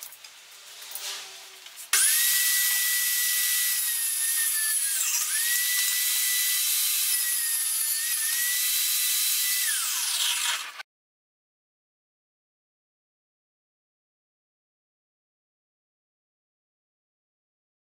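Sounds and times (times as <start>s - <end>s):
table saw motor whine: 2.0s - 10.8s.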